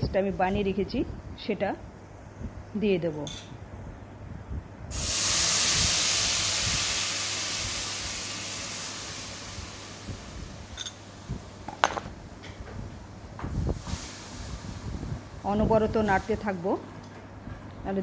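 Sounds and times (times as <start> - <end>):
loud sizzle in hot oil: 4.9 - 11.6, 13.7 - 15.4.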